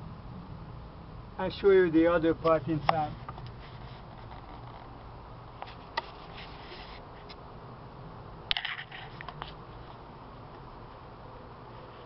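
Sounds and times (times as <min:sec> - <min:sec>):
low background noise: 0:00.0 - 0:12.0
rustling: 0:02.4 - 0:07.4.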